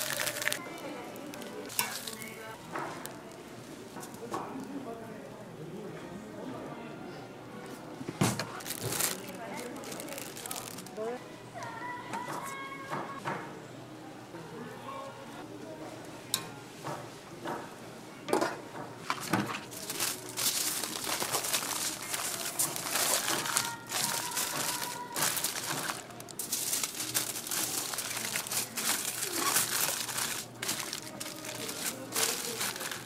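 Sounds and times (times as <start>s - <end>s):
aluminium foil crinkling: 0.0s - 3.2s, 8.5s - 11.2s, 19.2s - 33.0s.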